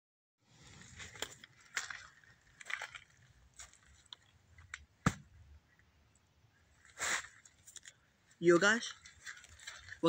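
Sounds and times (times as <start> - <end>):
footsteps crunching on forest litter: 0.6 - 4.4, 6.8 - 10.0.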